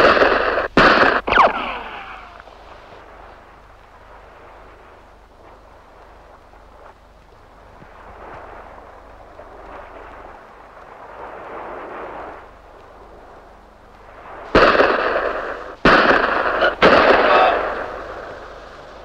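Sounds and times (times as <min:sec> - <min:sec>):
loud explosion: 0:00.0 - 0:03.2, 0:14.4 - 0:18.6.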